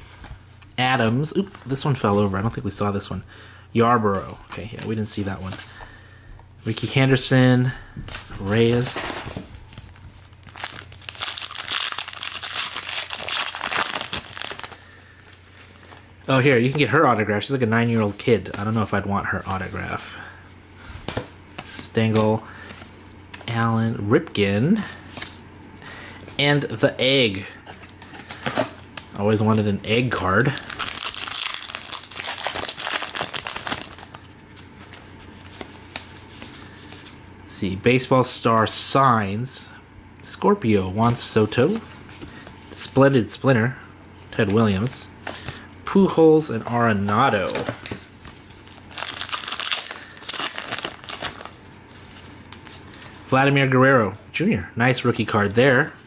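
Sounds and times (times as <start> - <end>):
foil wrapper crinkling and tearing: 10.3 - 14.8, 30.0 - 34.3, 48.6 - 53.1.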